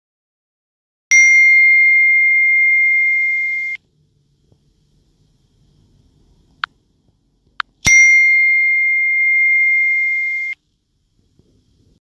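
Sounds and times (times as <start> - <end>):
steady high-pitched tone: 1.1 - 6.8, 7.5 - 10.7
short electronic blips: 1.5 - 3.8, 7.8 - 10.6.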